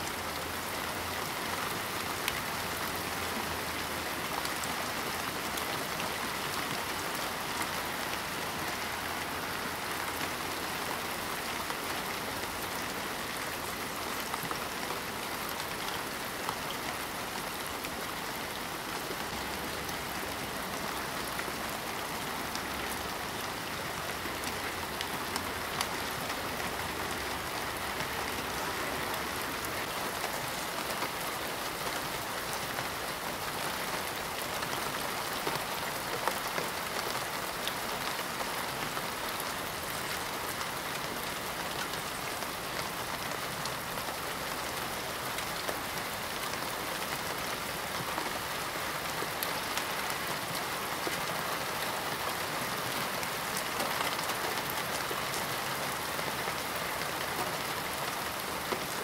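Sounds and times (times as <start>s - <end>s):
rain falling on car: 0.0s - 59.0s.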